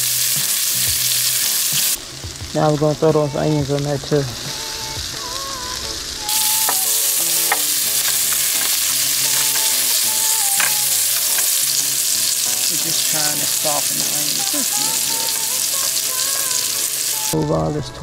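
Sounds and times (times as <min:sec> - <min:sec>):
sausage and onion sizzling in pan: 0:00.0 - 0:17.4
tongs clicking on pan: 0:06.3 - 0:16.4.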